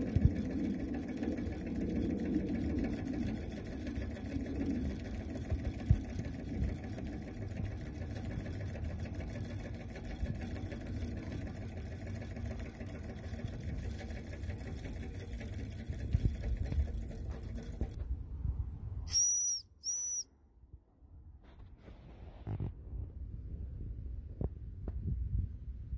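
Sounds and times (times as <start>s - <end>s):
toy steam engine hissing and chugging: 0.0s - 18.0s, 19.1s - 20.2s
steam whistle blasts: 19.1s - 20.3s.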